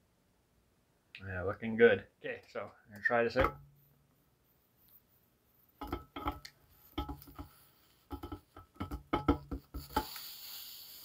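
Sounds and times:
metallic clinks of camp kettle: 5.8s - 7.5s, 8.1s - 10.1s.

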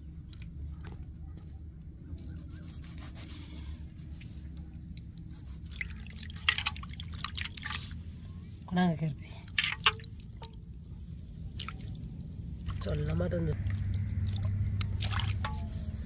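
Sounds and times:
low steady hum: 0.0s - 16.0s
water splashing in steel bowl: 5.7s - 7.9s, 9.4s - 15.7s.

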